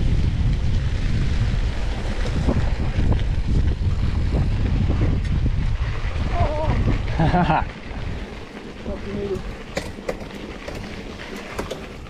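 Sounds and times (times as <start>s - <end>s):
tyres rumbling on rough trail: 0.0s - 12.0s
wind buffeting microphone: 0.0s - 12.0s
bike knocking over bumps: 8.4s - 12.0s.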